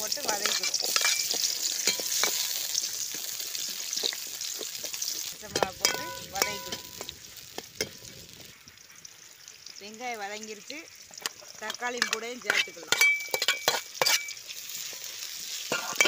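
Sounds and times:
shallots sizzling in oil: 0.0s - 16.0s
metal ladle scraping pan: 0.2s - 2.7s, 4.0s - 8.5s, 11.2s - 16.0s.

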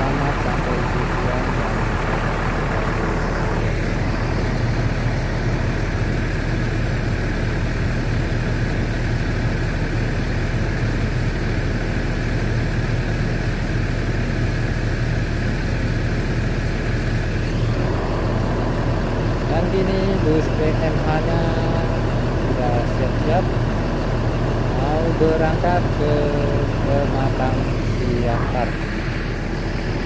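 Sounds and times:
bus diesel engine idling: 0.0s - 30.0s.

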